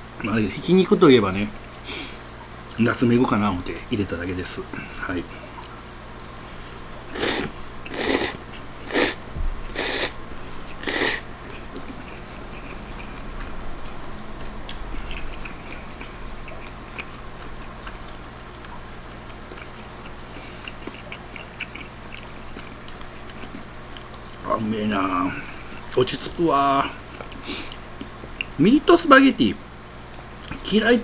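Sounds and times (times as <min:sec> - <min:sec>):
chewing with mouth clicks: 0:04.7 - 0:24.5, 0:25.4 - 0:28.6, 0:29.8 - 0:30.7
person slurping noodles: 0:07.1 - 0:10.2, 0:10.8 - 0:11.2.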